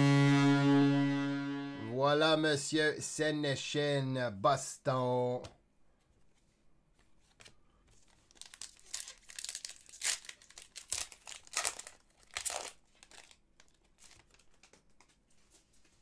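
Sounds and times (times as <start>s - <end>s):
wrapper tearing and crinkling: 8.1s - 14.8s.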